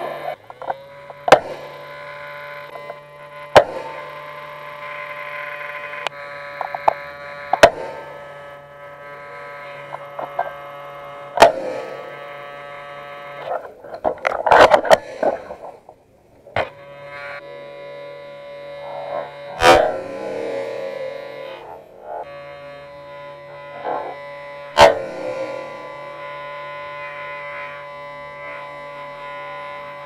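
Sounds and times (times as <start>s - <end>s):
steady electrical hum: 0.0s - 30.0s
airsoft rifle shots: 11.4s - 12.1s, 19.6s - 20.2s, 24.8s - 25.5s.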